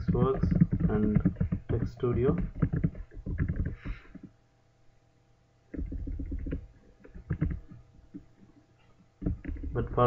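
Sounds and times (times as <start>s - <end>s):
computer keyboard keystrokes: 0.0s - 4.3s, 5.7s - 8.3s, 9.2s - 9.9s
faint electrical hum: 0.0s - 10.0s.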